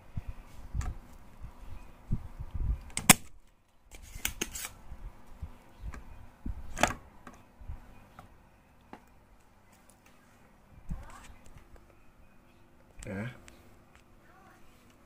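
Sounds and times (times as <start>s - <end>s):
desoldering pump snaps: 2.8s - 3.3s.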